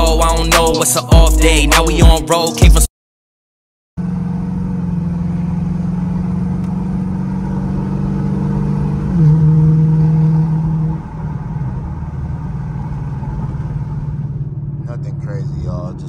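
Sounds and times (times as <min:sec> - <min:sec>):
car engine drone from inside cabin: 0:04.0 - 0:16.0.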